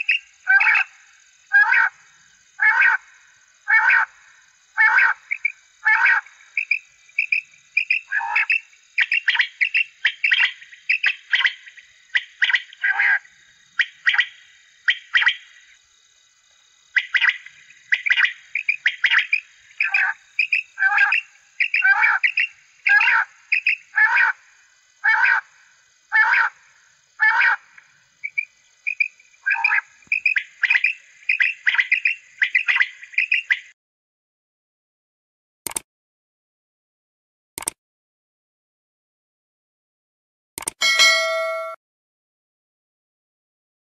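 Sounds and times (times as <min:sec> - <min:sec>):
recorded quail calls on loudspeaker: 0:00.0 - 0:02.0, 0:02.6 - 0:03.1, 0:03.7 - 0:04.2, 0:04.8 - 0:15.5, 0:17.0 - 0:24.4, 0:25.0 - 0:25.5, 0:26.1 - 0:26.6, 0:27.2 - 0:33.7.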